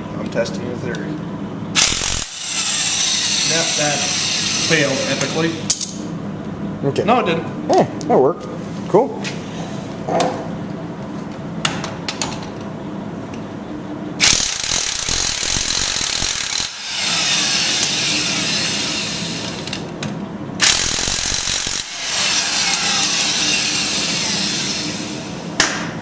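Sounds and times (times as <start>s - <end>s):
impact wrench hammering: 14.2s - 18.1s, 20.6s - 24.2s.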